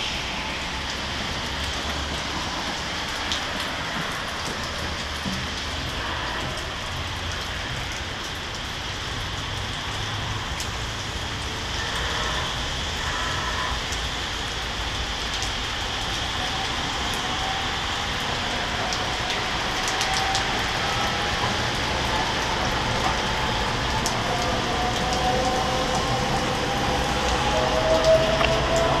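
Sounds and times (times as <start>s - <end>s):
train whine: 0.0s - 4.7s, 10.1s - 29.0s
steady rain: 0.0s - 29.0s
close raindrops ticking: 0.4s - 29.0s.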